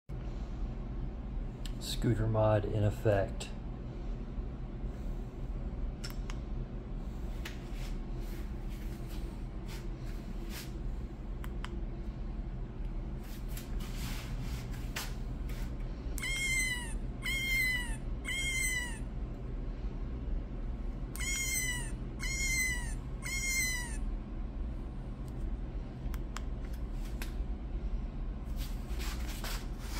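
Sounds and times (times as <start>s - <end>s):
electronic meows: 16.2s - 19.1s, 21.2s - 24.1s.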